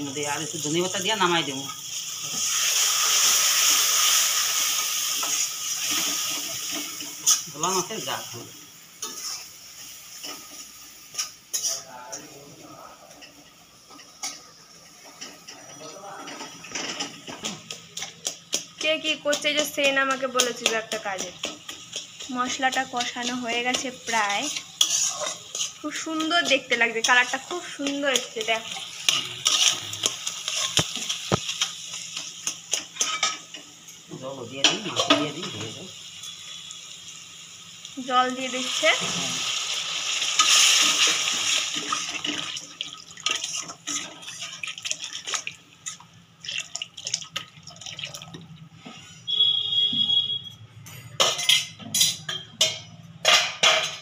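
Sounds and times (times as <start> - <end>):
masala sizzling in oil: 0.0 - 50.4
metal spatula scraping a pan: 9.0 - 11.8, 21.9 - 33.4, 43.3 - 46.0
metal spatula scraping metal pan: 23.0 - 31.1.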